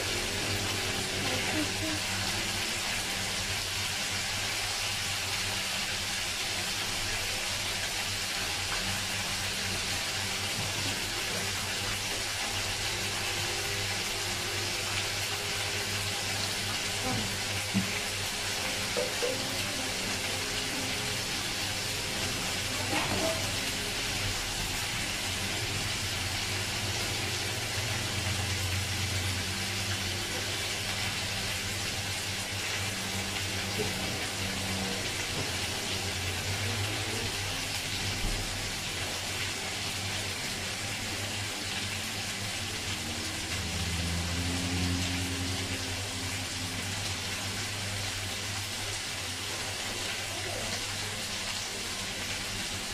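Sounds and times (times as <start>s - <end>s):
meat sizzling in a frying pan: 0.0s - 52.9s.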